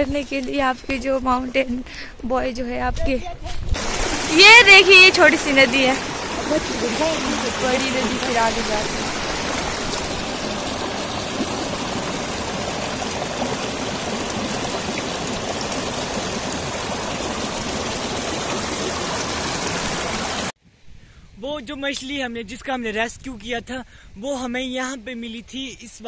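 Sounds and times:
stream rushing over rocks: 0:03.8 - 0:20.6.

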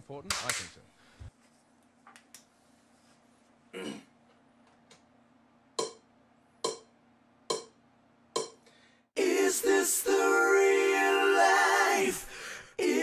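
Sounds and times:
sharp percussive taps: 0:05.8 - 0:06.0, 0:06.6 - 0:06.9, 0:07.5 - 0:07.8, 0:08.4 - 0:08.6.

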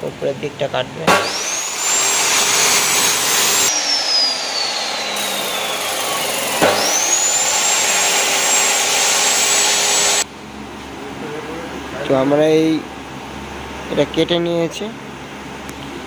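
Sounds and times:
chop saw cutting steel: 0:01.1 - 0:10.2.

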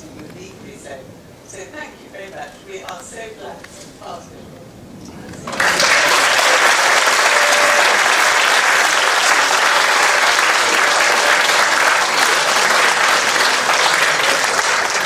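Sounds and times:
crowd clapping: 0:05.3 - 0:15.0.

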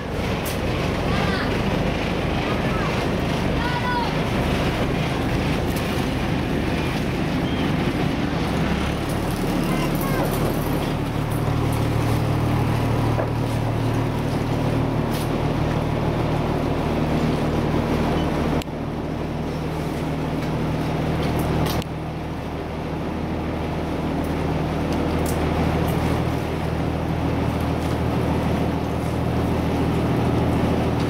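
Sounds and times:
boat engine drone: 0:00.0 - 0:31.0
water rushing: 0:00.0 - 0:31.0
wind: 0:00.0 - 0:31.0.

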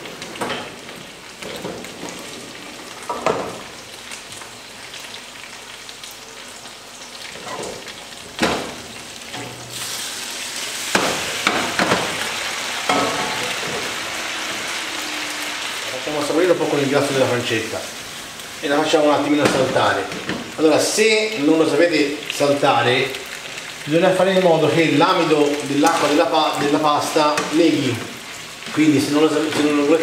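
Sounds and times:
pasta sizzling in pan: 0:00.0 - 0:30.0
metal pot clanks: 0:12.9 - 0:13.9.

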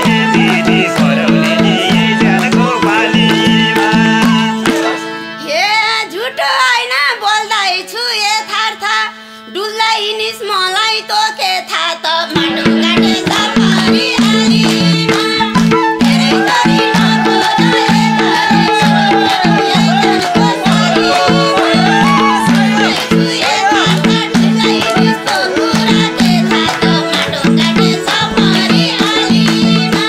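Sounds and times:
hand drum rhythm: 0:00.0 - 0:05.0, 0:12.3 - 0:30.0
ornamented sliding solo melody: 0:00.0 - 0:05.2, 0:15.4 - 0:27.2.

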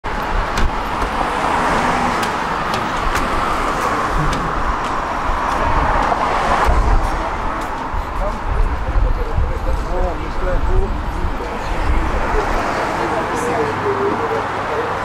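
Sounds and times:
street traffic noise: 0:00.0 - 0:15.0
footsteps on pavement: 0:00.4 - 0:08.5.

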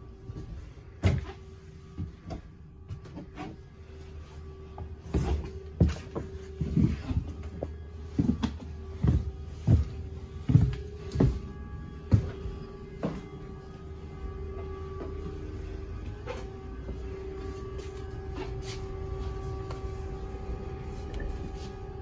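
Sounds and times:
steady hum with held tone: 0:00.0 - 0:22.0
footsteps on bus stairs: 0:00.1 - 0:22.0.

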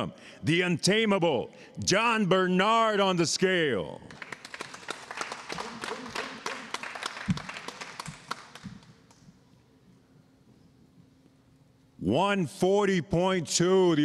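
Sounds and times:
scattered applause: 0:04.1 - 0:09.2.

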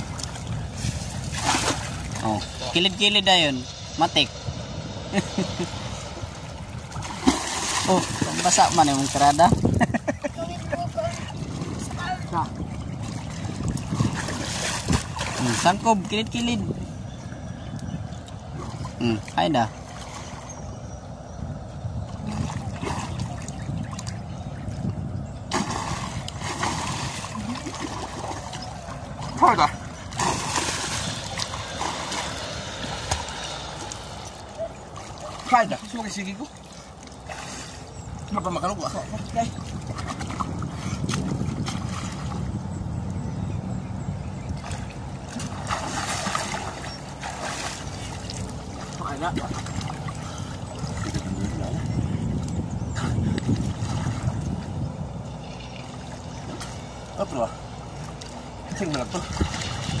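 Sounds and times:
water sloshing around swimmers: 0:00.0 - 0:03.3, 0:06.1 - 1:00.0
steady low rumble: 0:00.0 - 1:00.0
kicking splash: 0:25.5 - 0:27.3.

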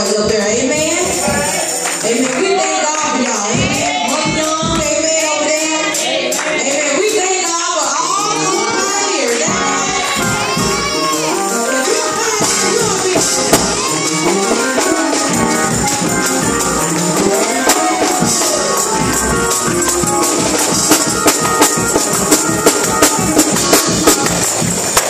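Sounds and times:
sharp beats: 0:00.0 - 0:25.0
woman singing into microphone: 0:02.0 - 0:10.9
tambourine shaking: 0:03.7 - 0:25.0.

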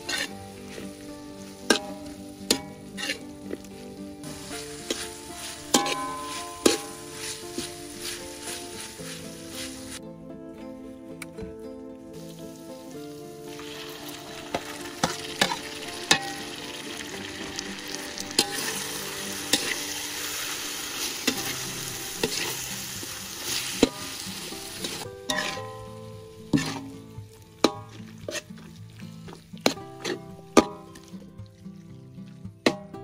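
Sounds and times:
food sizzling in a wok: 0:00.0 - 0:10.0, 0:12.2 - 0:28.8
metal spatula scraping wok: 0:00.0 - 0:10.0, 0:13.6 - 0:25.8, 0:26.5 - 0:28.8.

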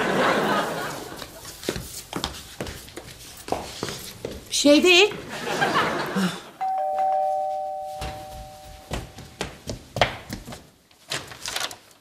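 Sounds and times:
footsteps and clicks: 0:01.2 - 0:04.5, 0:08.0 - 0:12.0
two-tone doorbell chime: 0:06.6 - 0:09.2.

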